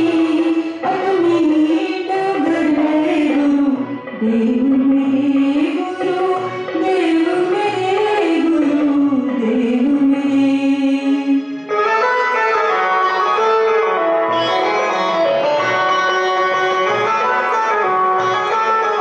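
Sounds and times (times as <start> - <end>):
woman singing devotional song: 0.0 - 11.6
keyboard melody: 0.0 - 19.0.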